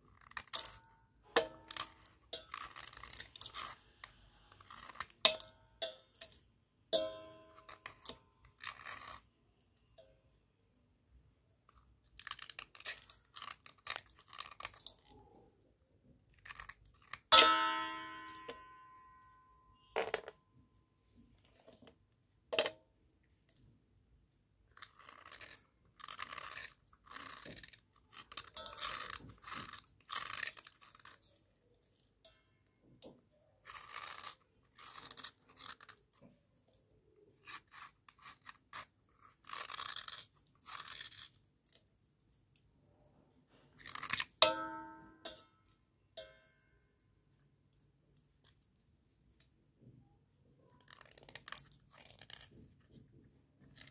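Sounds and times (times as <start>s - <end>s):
sharp clink on steel bowl: 7.0s - 7.6s, 17.3s - 19.9s, 44.4s - 45.6s
slate crunching and scraping: 24.7s - 31.4s.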